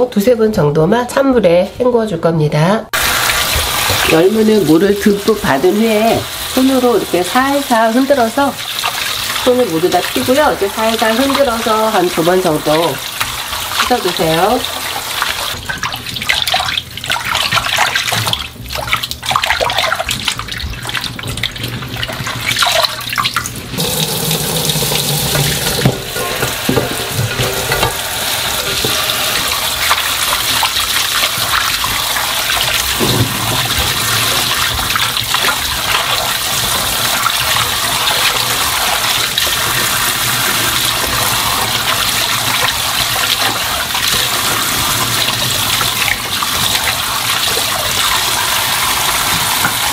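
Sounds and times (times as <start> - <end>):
tap running into bowl: 23.4 - 38.4, 39.0 - 49.9.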